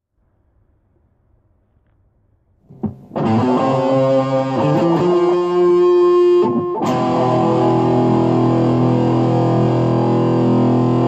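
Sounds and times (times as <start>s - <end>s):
guitar chords: 2.7s - 11.0s.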